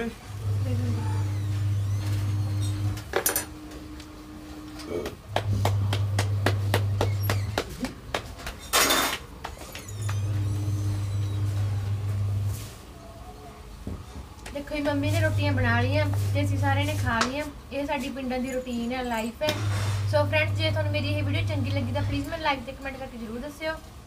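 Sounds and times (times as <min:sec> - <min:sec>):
low steady hum: 0:00.0 - 0:07.6, 0:19.5 - 0:23.6.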